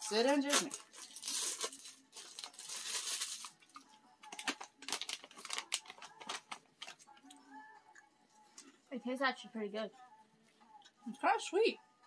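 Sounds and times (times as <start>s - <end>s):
plastic snack bag rustling: 0.0s - 7.1s.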